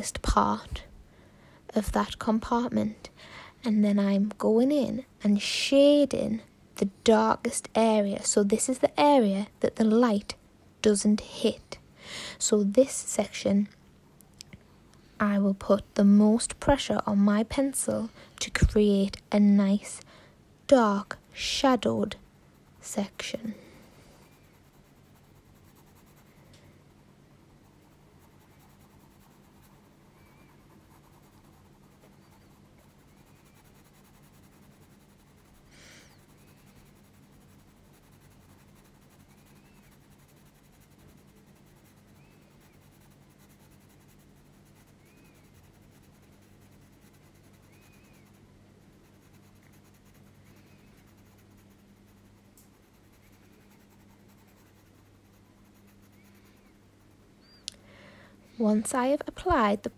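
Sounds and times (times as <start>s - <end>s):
low steady hum: 0.0s - 59.9s
pencil scratching on paper: 20.7s - 57.6s.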